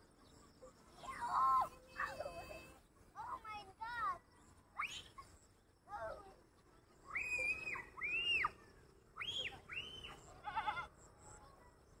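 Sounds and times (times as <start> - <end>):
goats bleating: 10.4 - 10.9.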